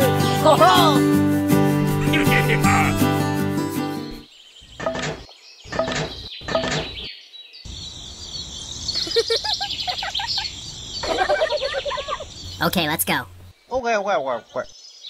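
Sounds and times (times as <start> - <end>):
birds chirping: 1.8 - 15.0
outdoor background hiss: 4.2 - 5.6, 7.1 - 15.0.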